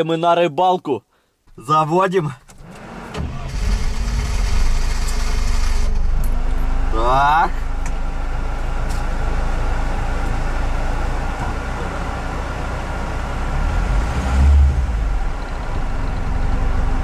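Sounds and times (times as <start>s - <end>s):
vehicle engine from inside cabin: 2.5s - 17.0s.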